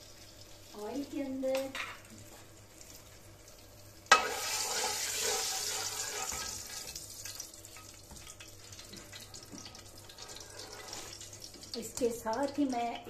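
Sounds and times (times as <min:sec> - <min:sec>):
hot oil sizzling: 0:00.0 - 0:13.0
spoon stirring through oil: 0:04.1 - 0:12.6.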